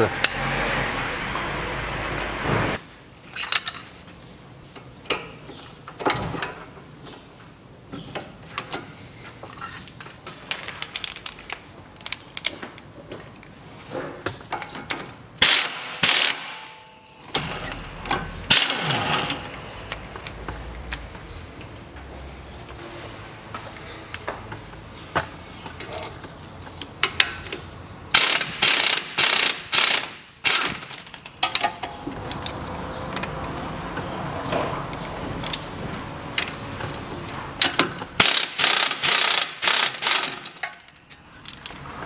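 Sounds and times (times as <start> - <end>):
ratchet wrench clicks: 38.2 - 40.4.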